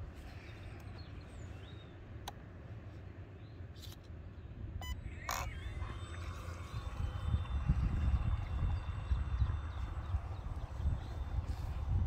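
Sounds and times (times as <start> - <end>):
wind rumbling on microphone: 4.5 - 12.0.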